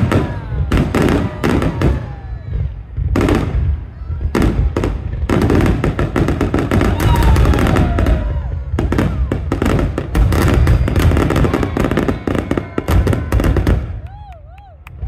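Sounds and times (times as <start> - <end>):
fireworks crackling and banging: 0.0 - 15.0.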